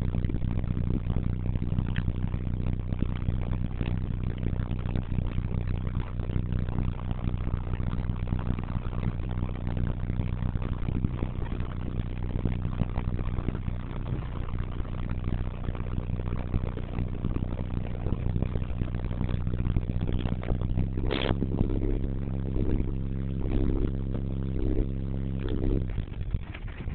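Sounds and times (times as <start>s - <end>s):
diesel engine running: 13.8s - 26.9s.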